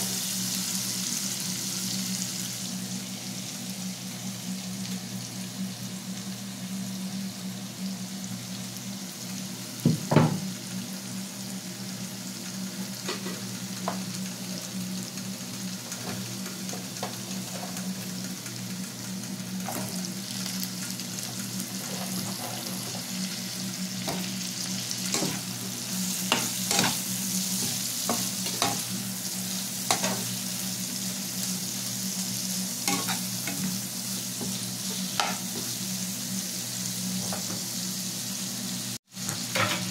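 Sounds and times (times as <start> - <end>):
vegetables sizzling in oil: 0.0 - 39.9
steady low hum: 10.6 - 37.0
metal spatula scraping a pan: 26.2 - 28.9, 32.8 - 33.7.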